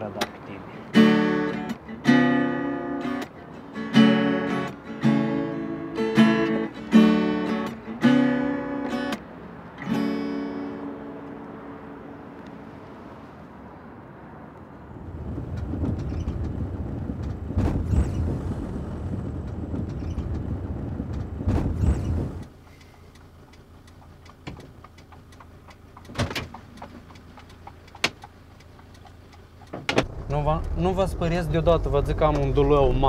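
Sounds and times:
van engine and tyre rumble: 0.0s - 33.0s
sharp knocks and clicks: 19.4s - 30.8s.

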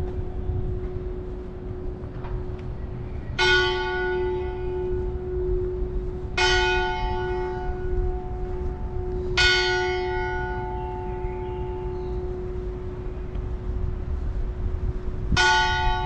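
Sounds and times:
low rumble: 0.0s - 9.6s
large bell tolling: 0.0s - 13.0s, 15.3s - 16.0s.

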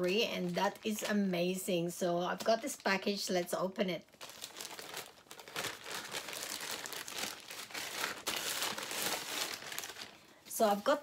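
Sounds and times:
plastic mailer crinkling: 4.1s - 11.0s.

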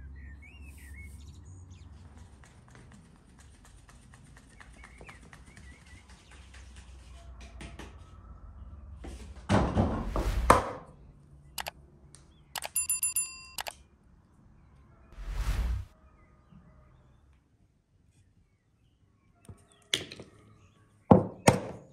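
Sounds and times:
click: 12.6s - 12.8s, 13.6s - 13.8s
short bell chime: 12.6s - 13.7s.

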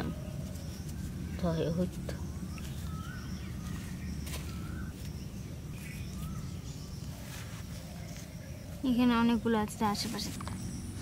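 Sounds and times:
steady low rumble: 0.0s - 7.2s
birds chirping: 0.0s - 11.0s.

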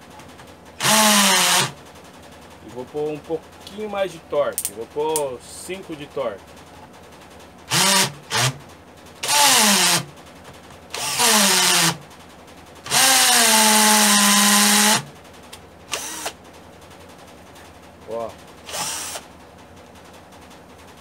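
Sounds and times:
cordless drill hammering into wood: 0.8s - 1.8s, 7.7s - 8.6s, 9.2s - 10.1s, 10.9s - 12.0s, 12.8s - 15.1s, 15.9s - 16.4s, 18.6s - 19.3s.

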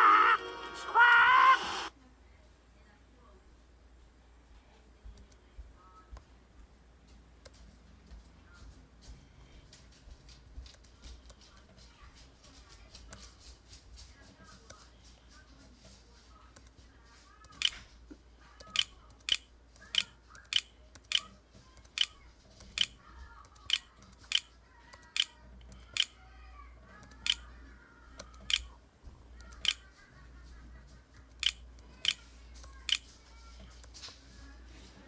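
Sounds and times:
faint music: 0.0s - 35.0s
mouse button clicking: 18.6s - 21.3s, 23.7s - 25.3s, 27.0s - 27.4s, 28.2s - 28.7s, 31.4s - 32.2s.

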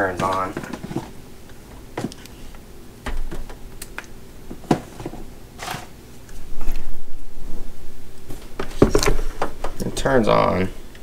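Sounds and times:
rubbing and thumps of handled unit: 0.0s - 3.6s
charger cables clicking and rustling: 0.0s - 6.8s.

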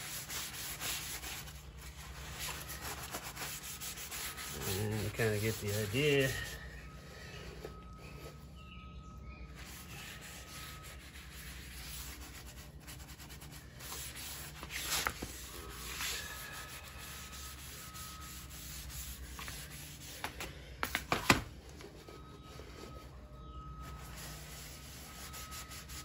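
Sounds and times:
cloth scrubbing over wood: 0.0s - 6.6s.

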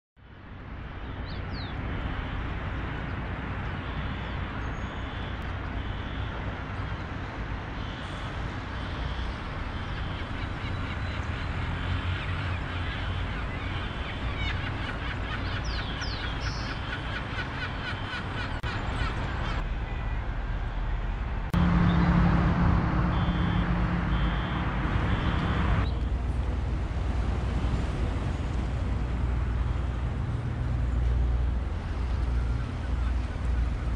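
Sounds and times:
distant traffic rumble: 0.2s - 33.9s
wind: 0.2s - 33.9s
low engine hum: 0.4s - 33.9s
birds chirping and calling: 9.2s - 19.6s.

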